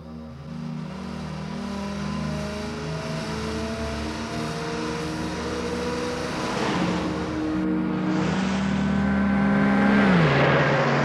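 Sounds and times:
car engine accelerating: 0.0s - 11.0s
road noise: 0.0s - 11.0s
traffic passing close by: 6.1s - 11.0s.

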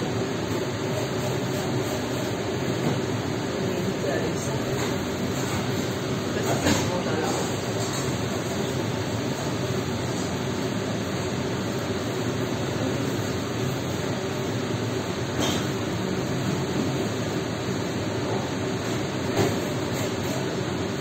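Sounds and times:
restaurant background noise: 0.0s - 21.0s.

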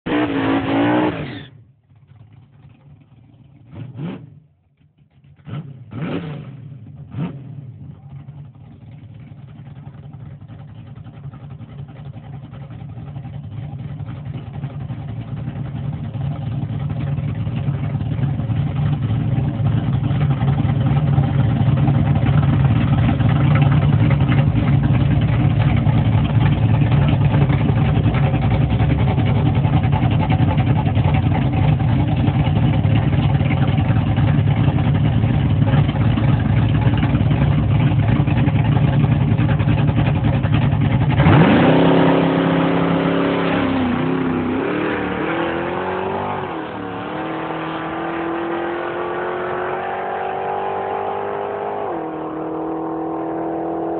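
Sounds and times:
car engine revving: 0.1s - 1.5s, 5.3s - 8.6s, 16.4s - 53.9s.

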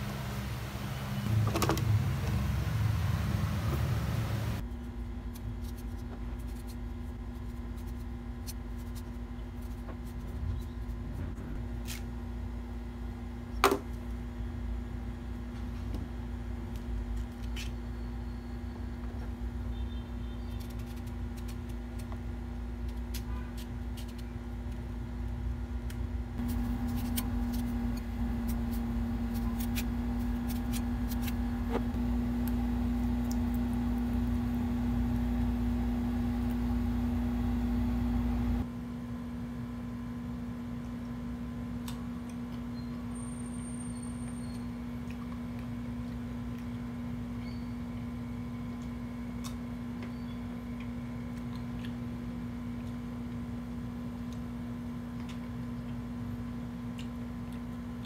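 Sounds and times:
electric fan motor hum: 0.0s - 17.4s, 23.7s - 38.7s.

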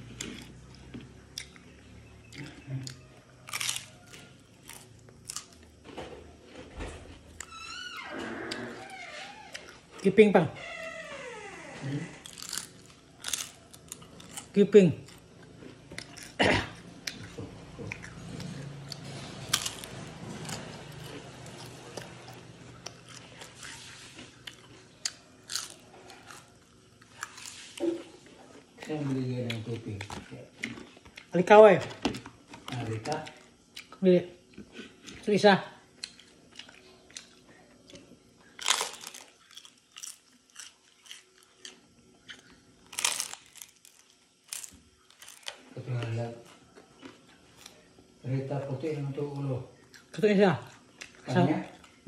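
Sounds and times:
crunchy wafer being chewed: 0.0s - 5.8s, 11.9s - 48.2s, 49.2s - 52.0s.

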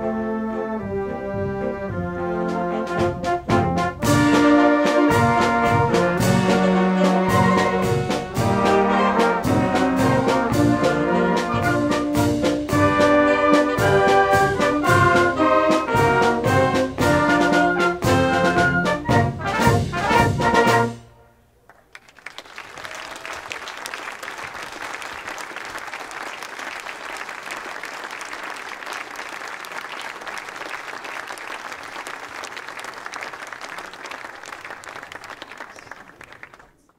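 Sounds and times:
wind band playing a march: 0.0s - 21.4s
audience applause: 21.7s - 36.9s.

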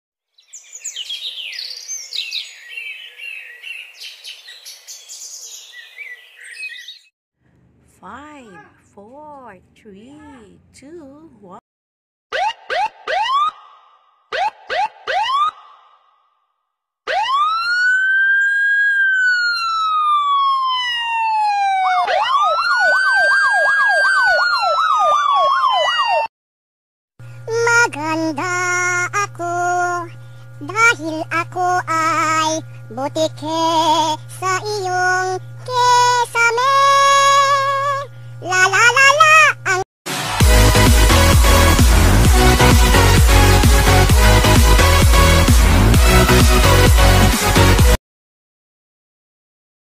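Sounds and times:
songbirds chirping: 0.4s - 7.1s
siren wailing and yelping: 12.3s - 16.1s, 17.1s - 26.3s.

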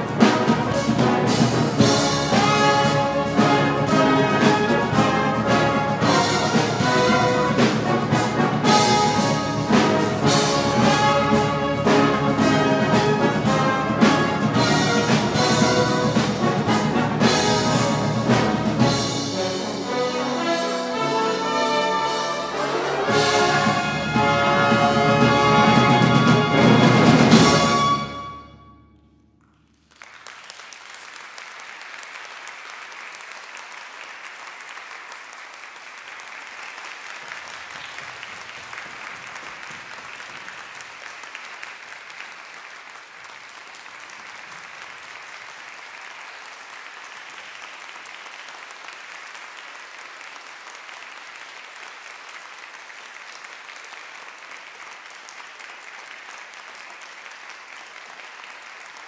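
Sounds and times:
audience applauding: 0.0s - 20.2s, 29.4s - 59.0s.

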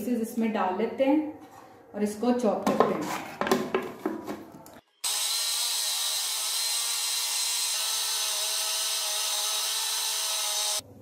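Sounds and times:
electric food chopper whining: 5.1s - 10.8s.

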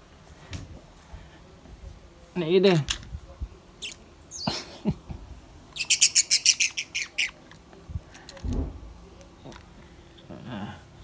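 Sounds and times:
budgerigar chirping: 5.8s - 7.4s.

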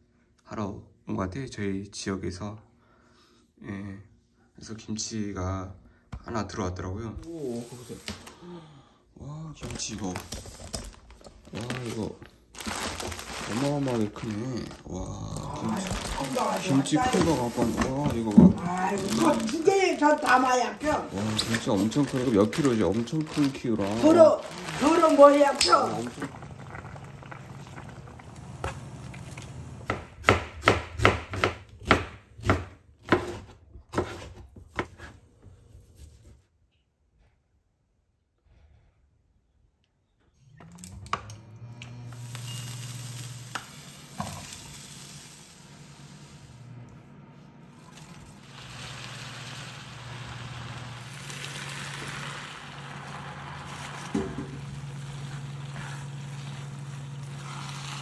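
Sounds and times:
stir-fry sizzling: 11.6s - 35.1s, 42.0s - 58.0s
knife chopping on cutting board: 29.8s - 35.1s.

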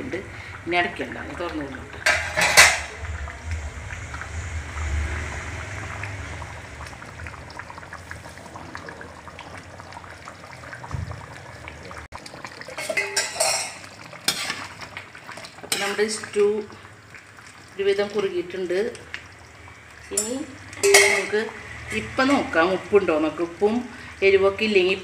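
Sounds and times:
stew boiling and bubbling: 0.0s - 25.0s
metal ladle knocking on pot: 2.0s - 3.0s.

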